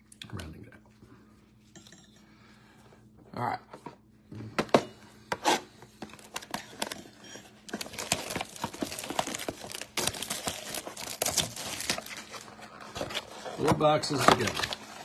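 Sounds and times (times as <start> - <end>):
shrink wrap crinkling and tearing: 7.6 - 15.0.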